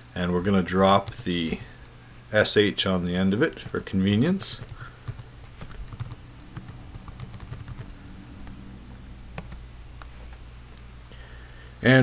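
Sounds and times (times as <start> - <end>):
low steady hum: 0.0 - 12.0
computer keyboard typing: 3.6 - 8.6, 9.4 - 9.6.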